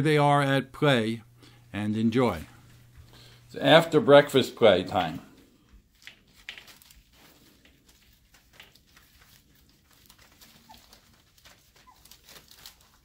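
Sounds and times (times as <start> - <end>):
paws scratching on a blanket: 5.8 - 13.0
puppy squeak: 10.6 - 11.0, 11.8 - 12.4.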